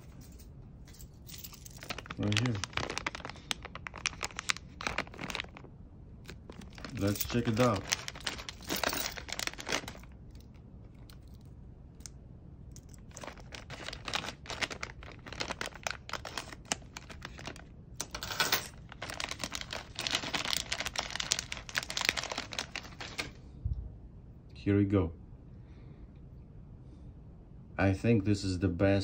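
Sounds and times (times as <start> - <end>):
plastic packet crinkling: 1.4 - 10.5, 12.9 - 23.4.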